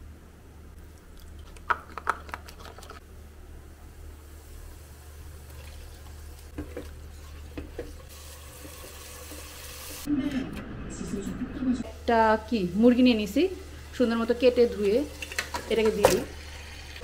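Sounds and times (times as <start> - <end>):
spice paste sizzling: 4.2 - 10.1, 11.9 - 17.0.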